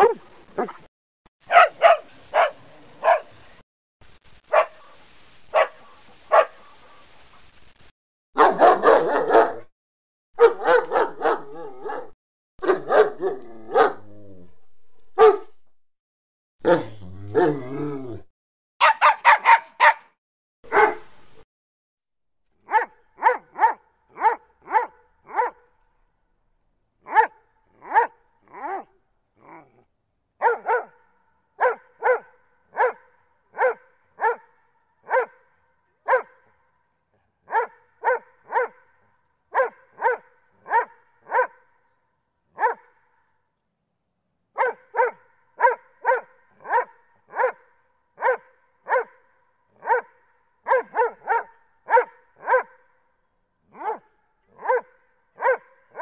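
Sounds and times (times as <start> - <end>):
dog barking: 0.0 - 3.4, 4.5 - 4.9, 5.5 - 6.6, 8.4 - 9.7, 10.4 - 14.0, 15.2 - 15.6, 16.6 - 17.6, 18.8 - 21.0, 22.6 - 25.7, 27.0 - 29.6, 30.4 - 41.8, 42.5 - 43.2, 44.6 - 53.0, 53.7 - 56.0.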